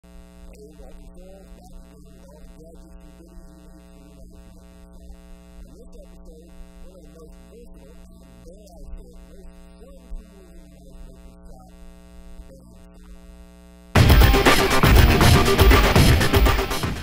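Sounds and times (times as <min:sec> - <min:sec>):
electrical mains hum: 0:00.0 - 0:16.6.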